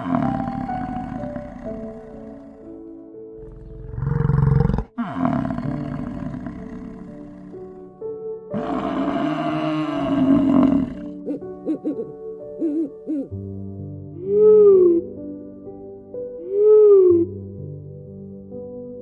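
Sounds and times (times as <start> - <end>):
soft background music: 0.0 - 19.0
owl wavering hoots: 11.0 - 13.3, 14.2 - 15.0, 16.4 - 17.3.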